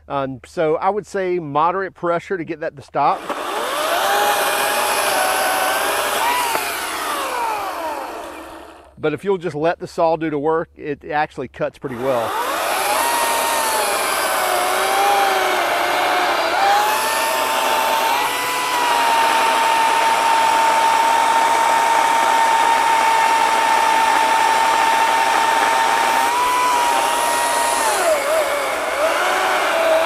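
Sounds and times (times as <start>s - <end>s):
electric chainsaw cutting wood: 3.1s - 9.0s, 11.9s - 30.0s.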